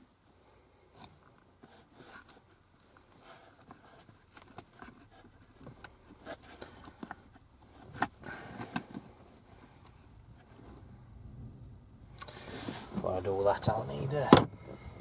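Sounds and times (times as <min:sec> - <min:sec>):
hands handling wires: 0:00.9 - 0:10.7.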